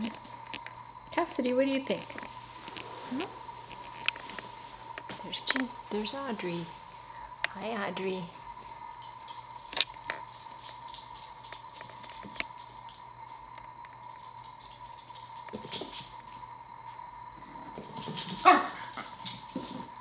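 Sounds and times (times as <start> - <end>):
dog yipping: 18.4 - 18.9
dog barking: 18.4 - 19.0.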